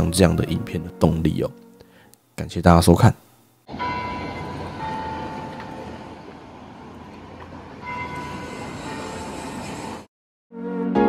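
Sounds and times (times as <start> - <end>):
train rumbling on rails: 3.7 - 10.1.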